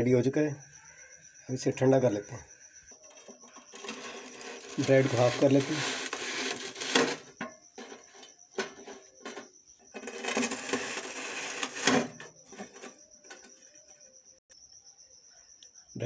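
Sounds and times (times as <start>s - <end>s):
knife sawing through toasted bread: 3.7s - 7.3s, 10.0s - 12.0s.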